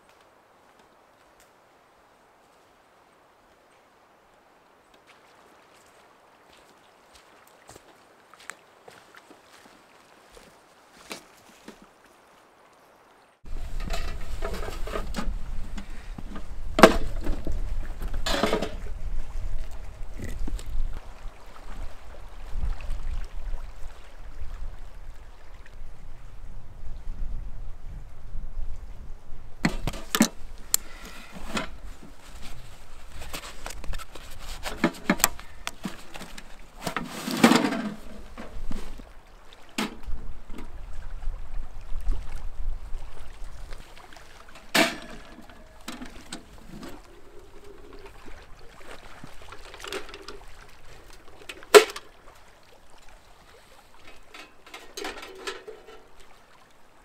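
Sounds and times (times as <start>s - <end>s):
water lapping: 5.0s - 26.3s, 29.7s - 57.0s
metal clanks and knocks: 13.5s - 17.6s, 18.2s - 18.8s, 44.6s - 48.2s, 54.1s - 56.1s.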